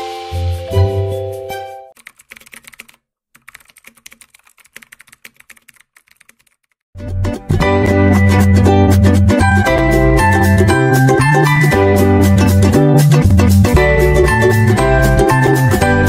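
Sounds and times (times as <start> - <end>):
music track: 0.0 - 2.0, 7.0 - 16.0
keyboard typing clicks: 2.0 - 6.8.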